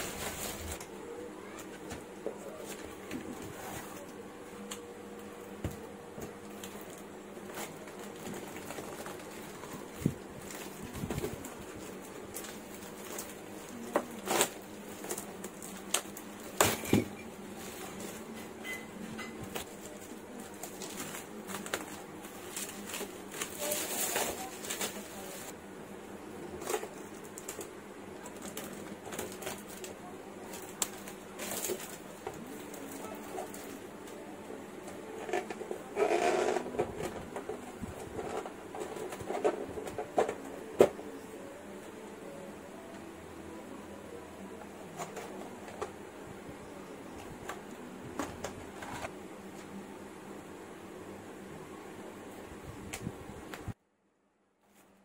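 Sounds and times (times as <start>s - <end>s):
bubble wrap crinkling: 0.0s - 0.9s, 6.3s - 18.4s, 19.4s - 25.6s, 26.6s - 34.2s
plastic and paper rustling: 0.0s - 4.8s, 6.2s - 25.6s, 26.4s - 34.2s, 34.8s - 41.0s
faint steady hum: 0.0s - 55.0s.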